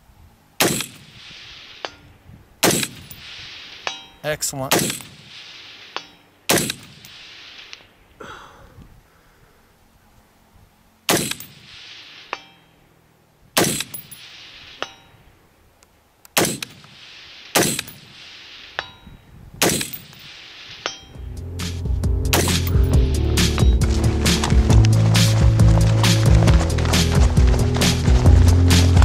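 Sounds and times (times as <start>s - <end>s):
rifle shots: 0.6s - 1.9s, 2.6s - 3.8s, 4.7s - 5.8s, 6.5s - 7.7s, 11.1s - 12.3s, 13.6s - 14.6s, 16.3s - 18.7s, 19.6s - 20.9s, 22.3s - 22.8s
bullet pinging steel target: 11.1s - 12.8s, 13.6s - 15.2s, 17.6s - 18.1s, 18.7s - 21.3s, 22.3s - 22.9s.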